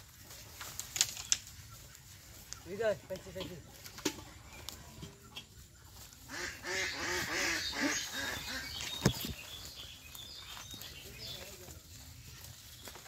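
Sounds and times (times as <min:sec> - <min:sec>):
duck or goose calls: 0:06.2 - 0:08.8.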